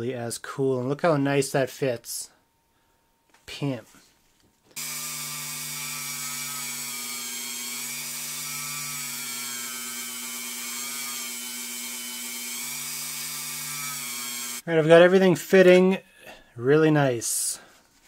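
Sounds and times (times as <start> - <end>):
rotary tool whining: 4.8 - 14.6.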